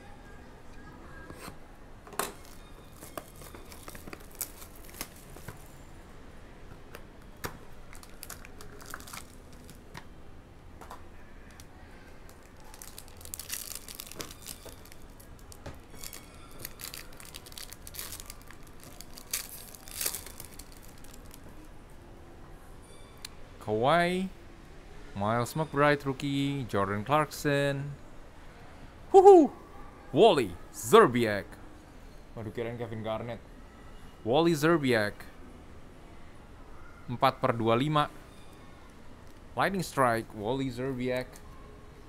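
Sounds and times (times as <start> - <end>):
foil wrapper crinkling and tearing: 2.4 - 5.5, 7.9 - 9.8, 12.3 - 21.5.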